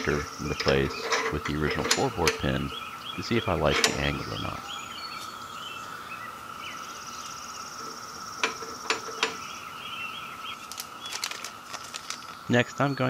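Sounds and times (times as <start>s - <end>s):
sharp metallic clicks: 0.0s - 2.8s, 3.4s - 4.6s
birds chirping: 0.0s - 13.0s
steady high hum: 0.0s - 13.0s.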